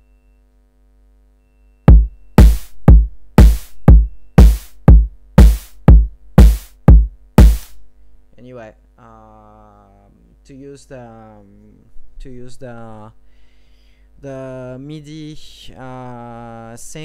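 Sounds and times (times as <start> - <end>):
drum machine beat: 1.9 - 7.8.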